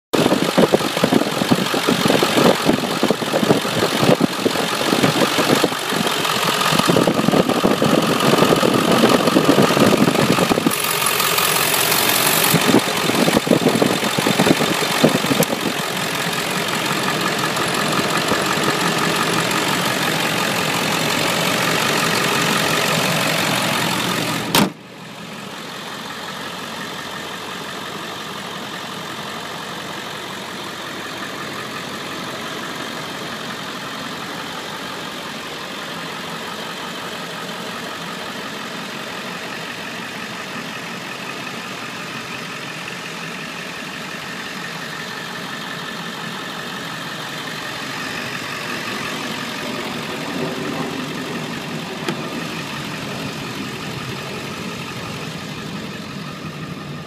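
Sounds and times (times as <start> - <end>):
diesel engine idling: 0.2 - 57.0
sharp thump: 24.5 - 24.8.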